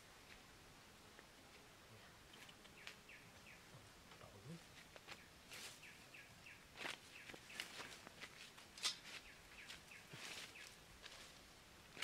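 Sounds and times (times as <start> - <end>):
bird chirping: 2.2 - 3.8, 5.1 - 7.9, 9.1 - 10.8
footsteps through grass and brush: 4.6 - 6.0, 6.7 - 12.0.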